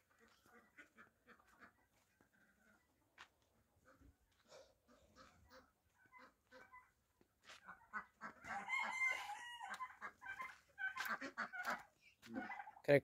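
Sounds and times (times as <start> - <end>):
chickens clucking and chirping: 0.0 - 13.0
rooster crowing: 8.4 - 9.9.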